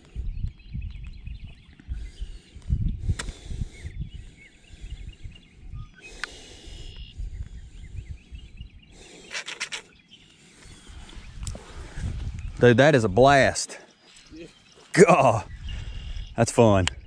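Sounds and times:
low rumbling on microphone: 0.0s - 6.0s, 10.8s - 12.6s
small birds chirping: 0.0s - 17.0s
brief rattle: 9.2s - 9.9s.

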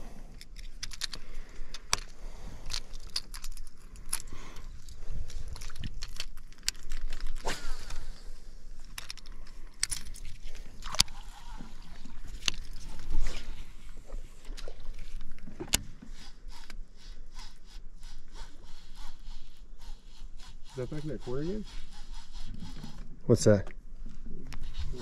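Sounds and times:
fishing tackle clicks and knocks: 0.3s - 8.0s, 8.8s - 11.2s, 12.2s - 13.1s.

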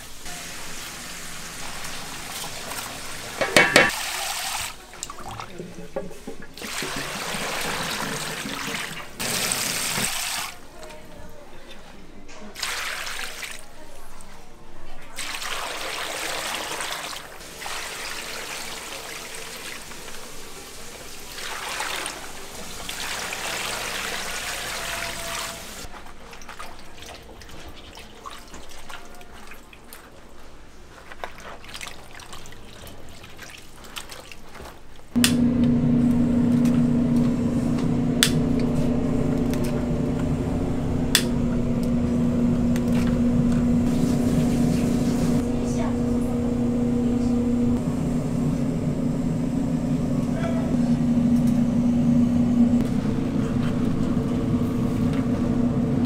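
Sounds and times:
water splashing into metal bowl: 2.3s - 5.6s
gas burner humming: 3.2s - 3.9s, 35.2s - 56.0s.

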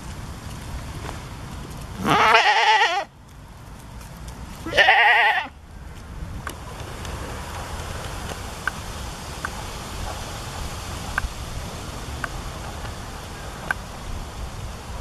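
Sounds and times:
goat bleating: 2.0s - 3.1s, 4.6s - 5.6s.

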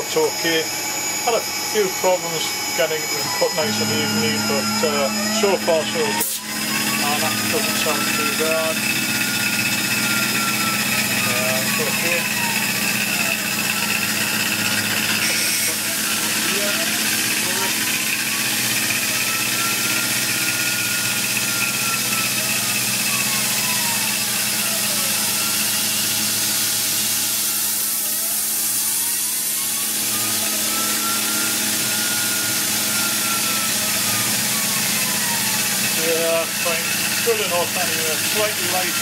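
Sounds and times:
milling machine cutting steel: 0.0s - 39.0s
faint whine rising and falling: 0.1s - 15.0s.

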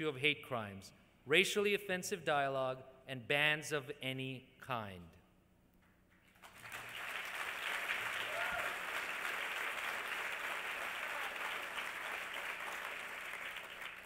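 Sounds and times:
audience applauding: 6.3s - 14.0s.

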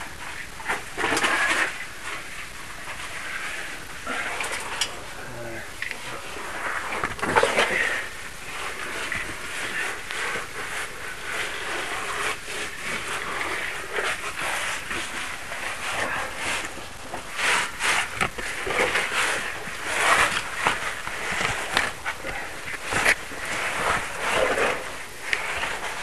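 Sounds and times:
clothing scraping against rock: 6.0s - 26.0s.

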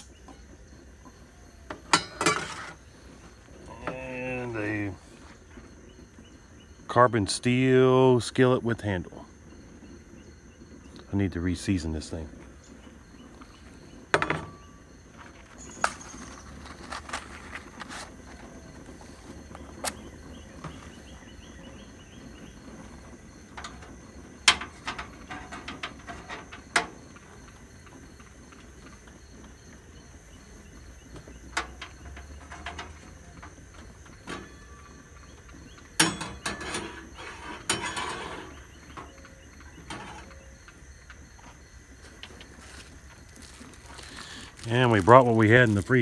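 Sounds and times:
metal cookware clicking and knocking: 1.9s - 2.8s, 36.0s - 36.9s, 37.6s - 38.4s
skillet clattering on wire grate: 1.9s - 2.8s, 14.1s - 14.7s, 23.5s - 27.1s, 31.5s - 34.8s, 35.7s - 40.4s.

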